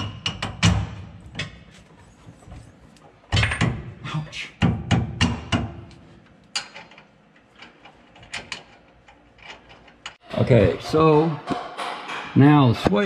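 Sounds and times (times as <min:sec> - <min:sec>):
heavy metal clunks and knocks: 0:04.6 - 0:05.9.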